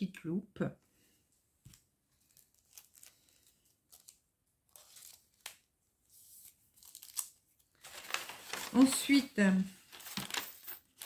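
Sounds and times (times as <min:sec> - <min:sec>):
packaging rustling and crinkling: 0:06.3 - 0:11.0.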